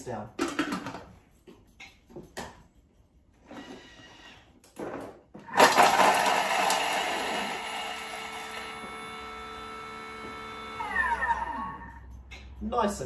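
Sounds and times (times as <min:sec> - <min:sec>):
food processor blade whirring: 0:05.5 - 0:12.0.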